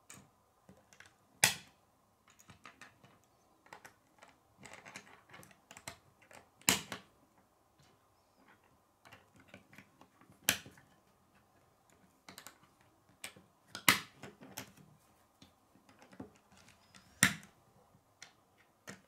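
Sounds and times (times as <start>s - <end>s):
plastic pieces clicking together: 2.3s - 7.0s.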